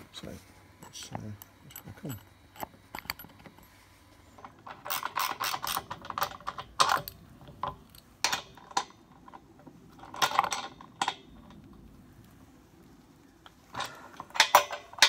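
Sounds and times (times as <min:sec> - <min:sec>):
socket wrench clicking and rattling: 0:00.9 - 0:03.6, 0:04.4 - 0:09.4.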